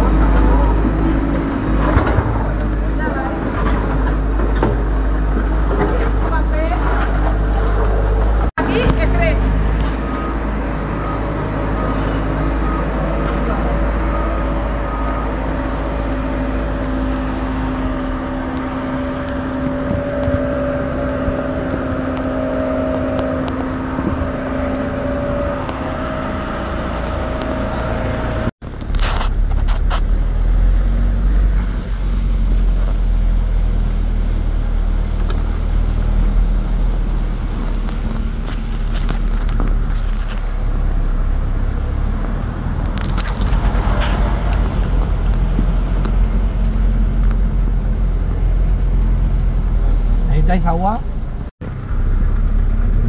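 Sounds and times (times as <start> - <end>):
engine and road noise: 0.0 - 53.0
held steady tones: 8.6 - 28.5.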